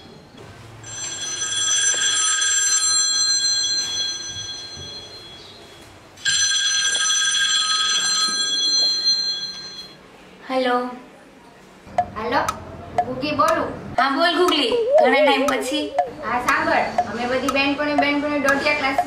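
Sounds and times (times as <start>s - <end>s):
mobile phone ringtone: 0.8s - 5.5s, 6.2s - 10.0s.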